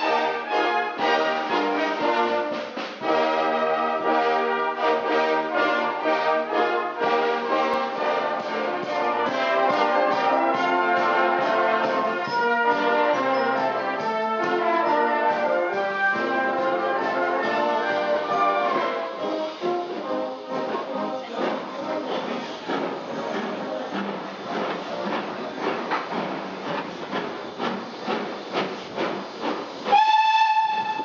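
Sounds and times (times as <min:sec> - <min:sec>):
brass band playing: 0:00.0 - 0:25.9, 0:29.8 - 0:31.0.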